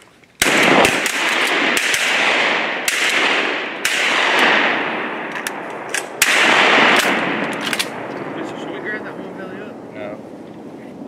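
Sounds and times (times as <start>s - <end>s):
shotgun blasts with echo: 0.4s - 9.0s.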